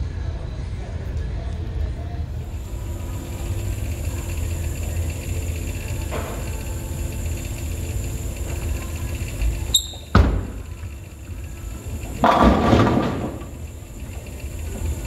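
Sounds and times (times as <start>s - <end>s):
bowling pins crashing: 10.1s - 10.8s, 12.1s - 13.7s
bowling ball thud on lane: 12.2s - 13.5s.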